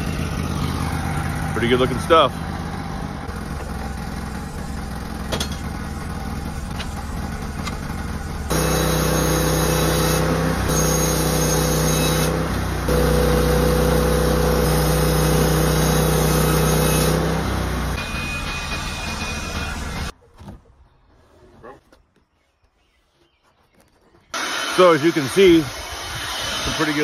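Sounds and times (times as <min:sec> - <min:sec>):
sawmill engine running: 0:00.0 - 0:20.1, 0:24.3 - 0:27.0
band blade sawing log: 0:08.5 - 0:18.0, 0:24.4 - 0:27.0.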